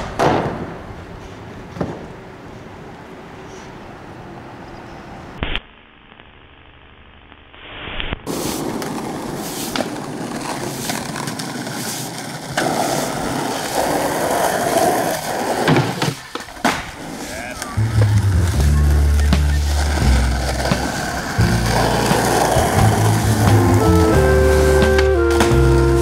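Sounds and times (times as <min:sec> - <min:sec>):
skateboard clacks: 0:00.0 - 0:02.3, 0:08.3 - 0:26.0
skateboard wheels on asphalt: 0:00.0 - 0:05.4, 0:08.2 - 0:26.0.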